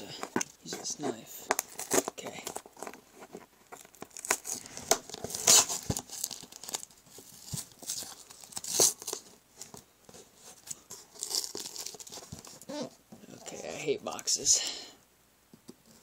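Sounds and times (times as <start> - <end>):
tape and cardboard scraping: 0.3 - 13.0
packing tape ripping: 1.5 - 3.0, 3.8 - 9.2, 11.1 - 12.8.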